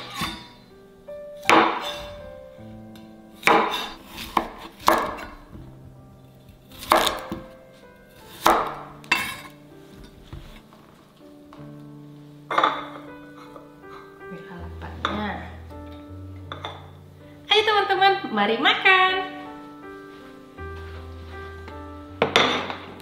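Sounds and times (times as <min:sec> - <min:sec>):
slow background music: 0:00.0 - 0:23.0
knife slicing on cutting board: 0:03.4 - 0:05.3, 0:06.7 - 0:07.3.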